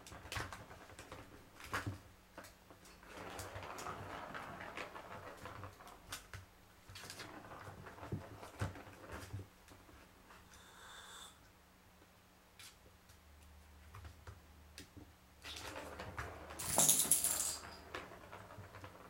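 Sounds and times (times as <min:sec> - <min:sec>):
ball rolling rattle in plastic track: 0:00.1 - 0:10.1, 0:15.4 - 0:19.0.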